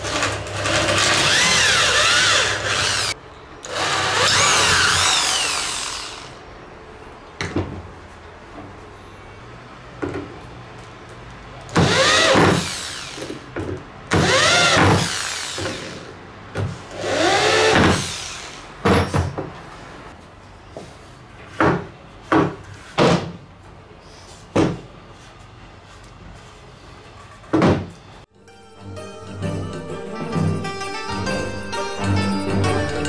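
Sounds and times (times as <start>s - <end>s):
electric drill driving screws: 0.0s - 6.4s, 11.8s - 13.4s, 14.2s - 16.1s, 16.9s - 18.7s.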